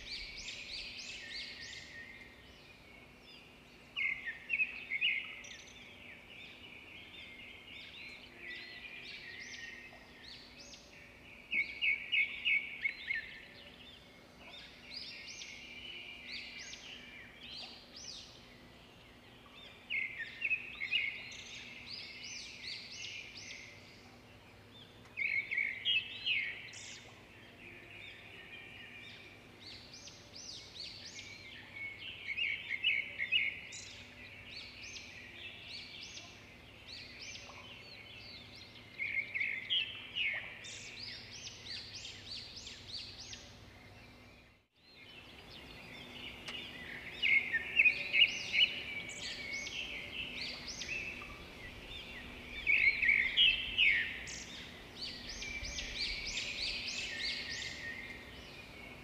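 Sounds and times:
bird singing warbling phrases: 25.0 - 59.0.

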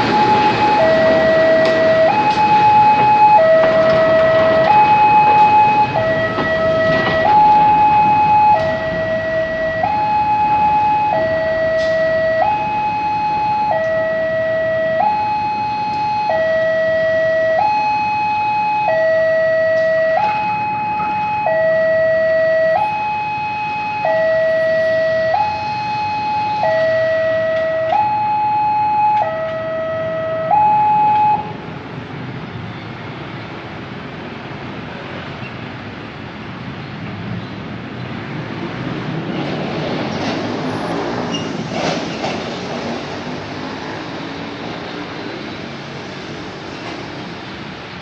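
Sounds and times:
freight wagons rumbling past: 0.0 - 13.4, 38.0 - 48.0
level crossing two-tone alarm: 0.0 - 31.5.

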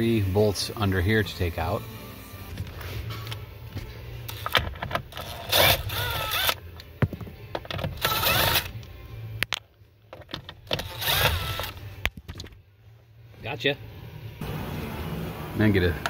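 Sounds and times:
electric driver motor whine: 5.2 - 6.6, 10.8 - 11.9.

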